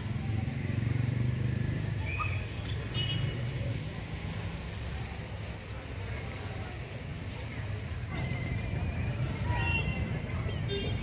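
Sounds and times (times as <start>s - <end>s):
animal squeaks and chirps: 2.0s - 2.9s.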